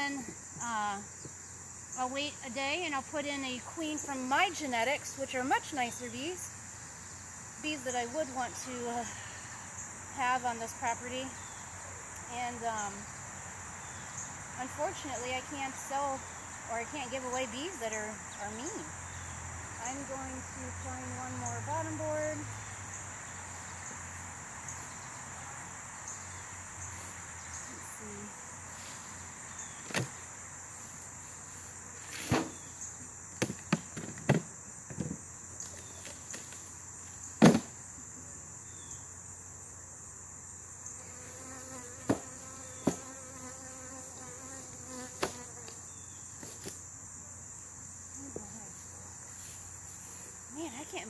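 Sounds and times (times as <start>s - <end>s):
high-pitched insect trill: 0.0s - 51.0s
bee buzzing: 40.8s - 46.2s.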